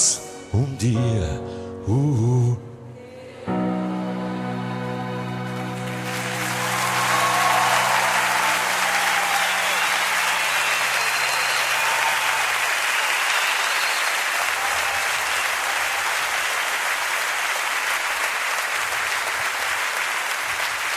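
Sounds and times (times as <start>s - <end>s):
audience applauding: 5.4s - 20.9s.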